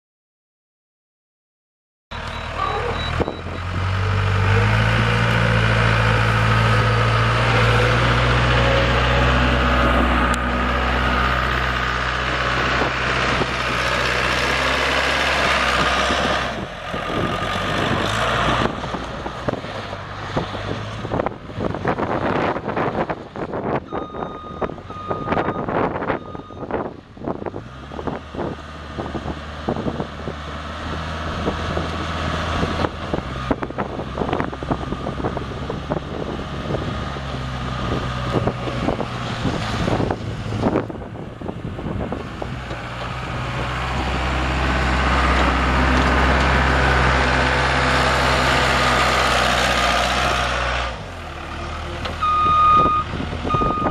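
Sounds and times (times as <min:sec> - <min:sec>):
backup alarm beeping: 0:02.1 - 0:03.6
diesel engine running: 0:02.1 - 0:53.9.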